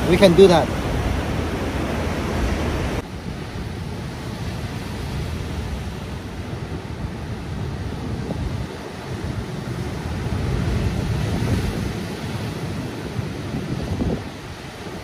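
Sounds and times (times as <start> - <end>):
wind on microphone: 0.0 - 15.0.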